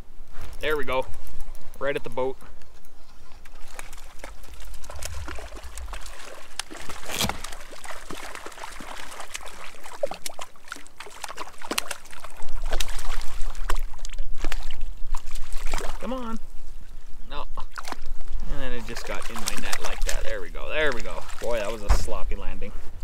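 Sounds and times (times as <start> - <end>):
fish thrashing and splashing: 3.4 - 16.1, 17.6 - 22.2.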